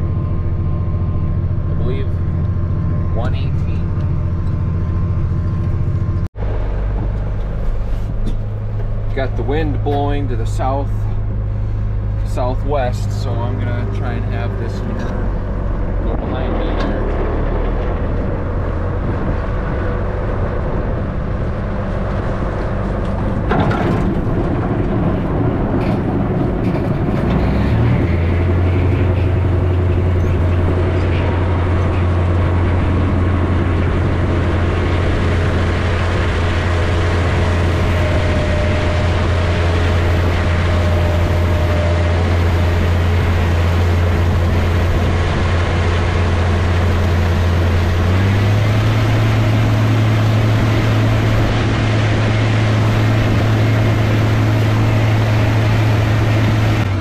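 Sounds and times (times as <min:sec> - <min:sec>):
tractor diesel engine droning: 0:00.0 - 0:57.0
manure spreader throwing manure: 0:12.3 - 0:57.0.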